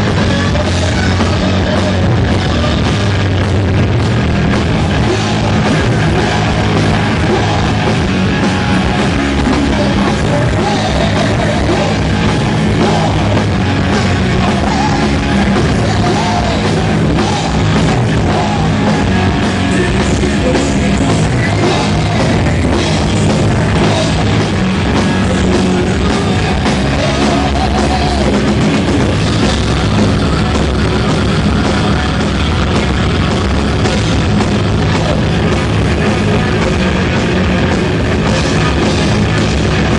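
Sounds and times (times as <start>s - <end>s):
person singing loudly: 0.0s - 3.2s, 4.6s - 29.4s
bass guitar: 0.0s - 39.9s
drum kit: 0.0s - 39.9s
electric guitars: 0.0s - 39.9s.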